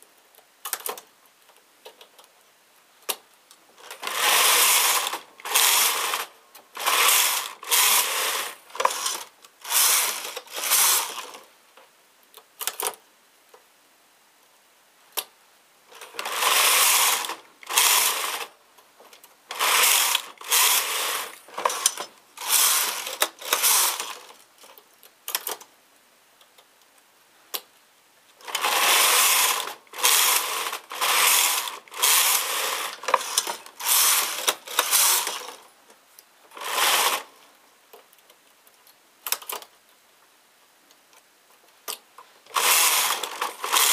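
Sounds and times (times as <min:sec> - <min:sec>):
knitting machine carriage rattling: 0:03.8 - 0:11.4, 0:16.0 - 0:18.5, 0:19.1 - 0:24.4, 0:28.4 - 0:35.6, 0:36.5 - 0:37.3, 0:42.5 - 0:43.9.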